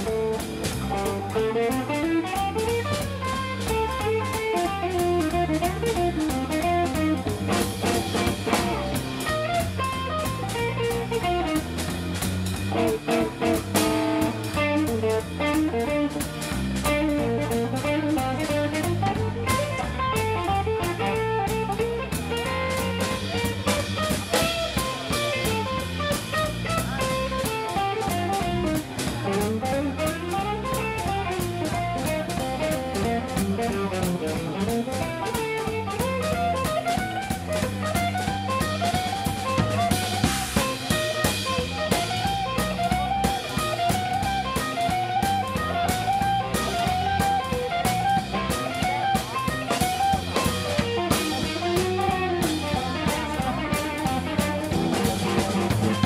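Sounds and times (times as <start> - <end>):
drum kit: 0.0 - 56.0
electric bass: 0.0 - 56.0
electric guitar: 0.0 - 56.0.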